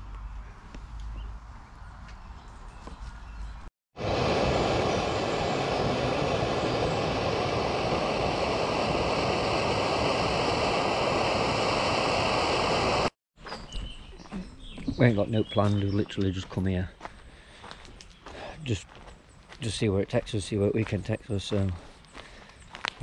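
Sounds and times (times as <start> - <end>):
loud steady rushing noise: 4.0 - 13.2.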